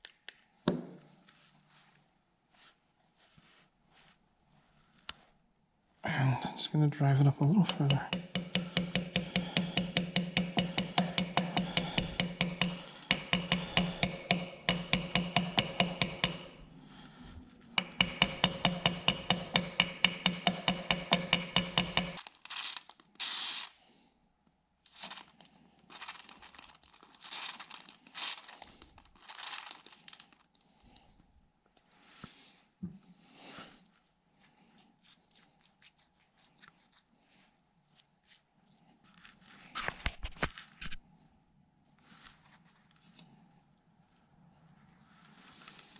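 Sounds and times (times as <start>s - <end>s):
rustling and handling noises: 1.0s - 6.0s, 24.9s - 32.8s, 33.4s - 41.0s, 41.9s - 45.9s
hammer tapping on metal: 7.6s - 16.7s, 17.8s - 22.2s.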